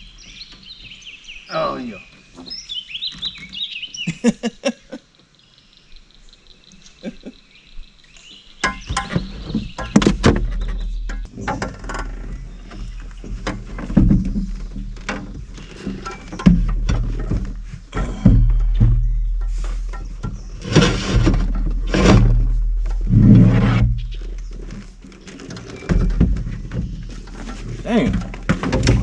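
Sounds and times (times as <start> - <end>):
knocks and thumps in aluminum boat: 8.6 - 29.0.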